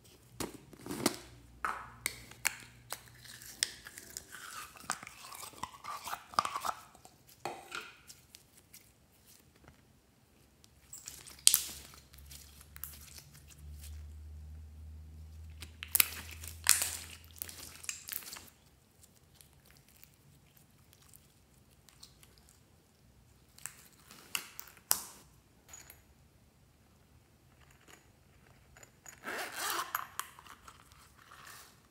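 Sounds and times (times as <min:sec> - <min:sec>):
slime clicking and crackling: 0:15.6 - 0:22.5.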